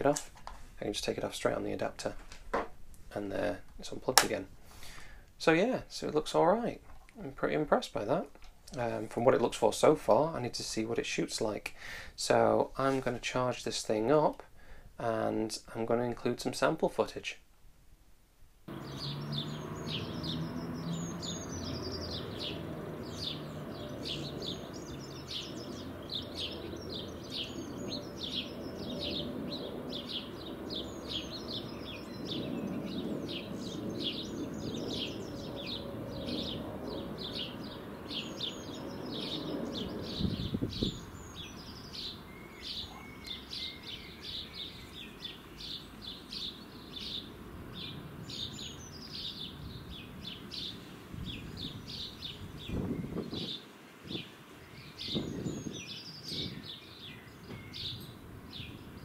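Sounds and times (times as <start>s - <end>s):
small songbirds chirping: 18.7s - 59.0s.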